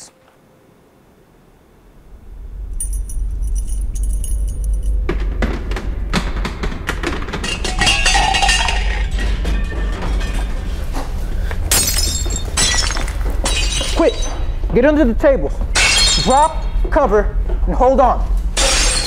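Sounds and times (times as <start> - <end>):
deep rumble: 1.6 - 18.6
glassware tinkling and rattling: 7.4 - 10.5.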